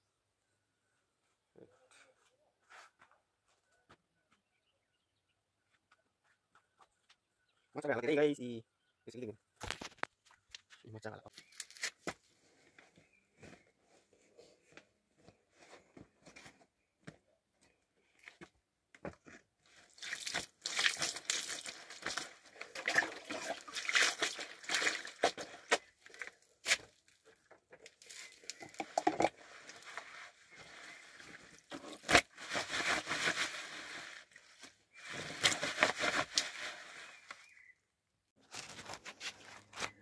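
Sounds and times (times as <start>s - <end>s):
scrubbing wet clothes by hand: 19.9s - 26.8s.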